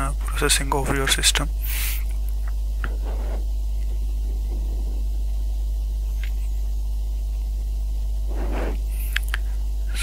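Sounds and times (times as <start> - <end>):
electrical mains hum: 0.0 - 10.0.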